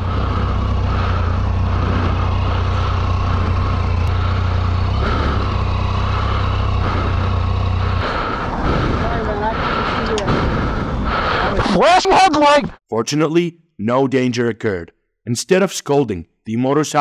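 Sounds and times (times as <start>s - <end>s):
motorcycle engine idling: 0.0s - 11.6s.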